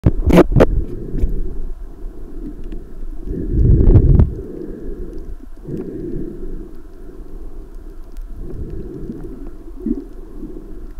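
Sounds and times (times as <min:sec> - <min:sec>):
muffled underwater rumbling wash: 0:00.0 - 0:10.9
faint clicks: 0:02.3 - 0:10.9.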